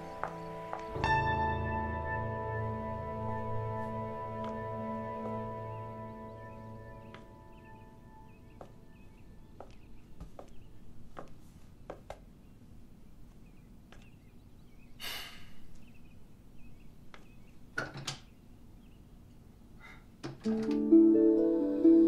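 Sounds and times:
faint footsteps: 0.0 - 1.2, 3.6 - 5.9, 6.7 - 12.4, 13.2 - 14.4
short breathy noise: 15.0 - 15.7.

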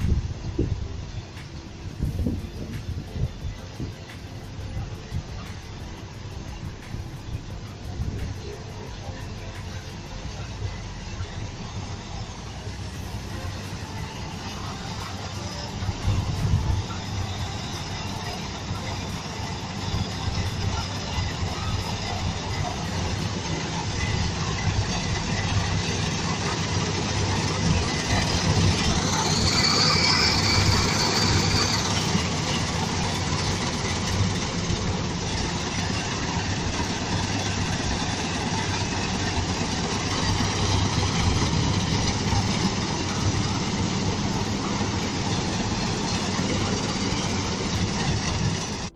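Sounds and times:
high machine whine: 0.0 - 48.9
low engine hum: 0.0 - 48.9
harvesting machine clatter: 12.6 - 48.9.

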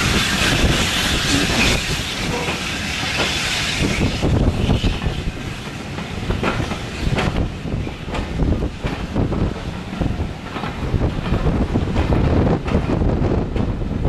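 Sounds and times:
steam hissing: 0.0 - 8.6
train rumble: 0.0 - 14.0.

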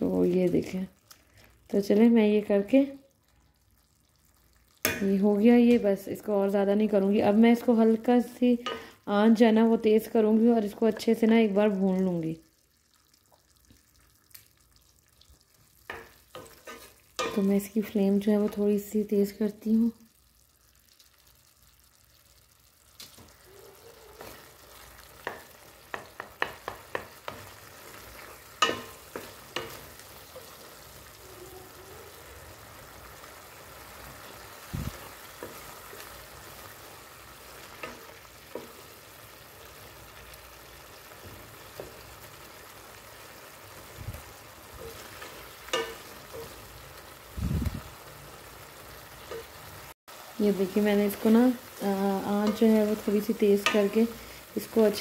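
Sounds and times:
pumpkin sizzling in hot oil: 0.0 - 55.0
wooden spoon clacking on pan: 8.6 - 8.9, 15.8 - 17.7, 25.1 - 30.7, 37.5 - 39.0, 44.8 - 46.6, 52.3 - 54.0.

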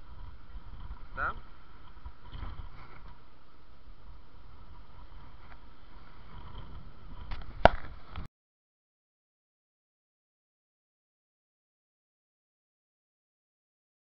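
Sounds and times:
microphone handling noise: 0.0 - 3.2, 4.7 - 8.3
low rumbling wind: 0.0 - 8.3.

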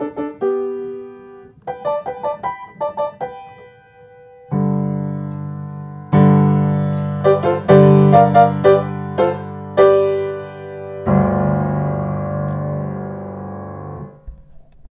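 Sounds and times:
piano chords and melody: 0.0 - 14.9.

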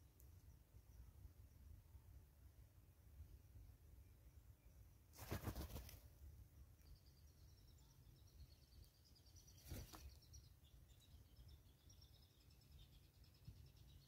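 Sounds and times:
small birds chirping: 0.0 - 2.2, 3.9 - 14.0
bird wings flapping: 5.2 - 6.0, 9.6 - 10.2.

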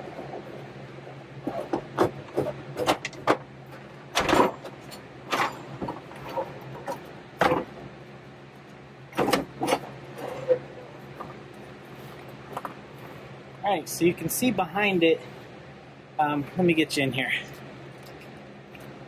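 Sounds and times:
steady low hum: 0.0 - 19.0
knocks clunks and scrapes: 1.4 - 7.8.

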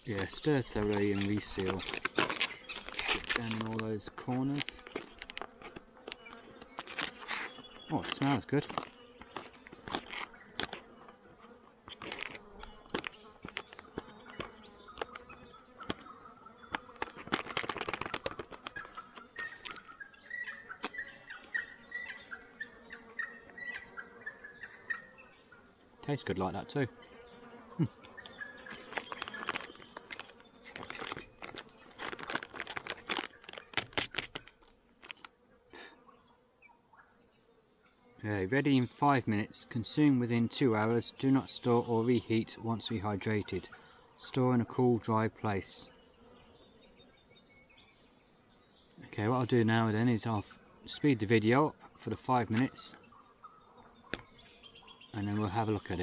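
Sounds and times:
faint insect buzz: 0.0 - 56.0
foil pouch crinkling: 0.8 - 10.8, 11.9 - 15.3, 17.0 - 19.9, 28.6 - 35.3.

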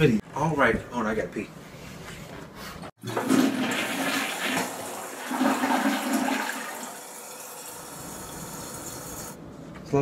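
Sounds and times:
toilet flushing: 3.0 - 9.4
water running as bowl refills: 3.0 - 9.4.

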